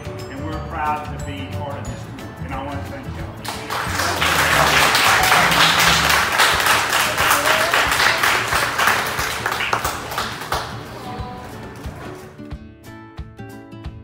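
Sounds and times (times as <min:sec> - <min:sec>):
quiet background music: 0:00.0 - 0:13.0
crowd applauding: 0:03.4 - 0:11.2.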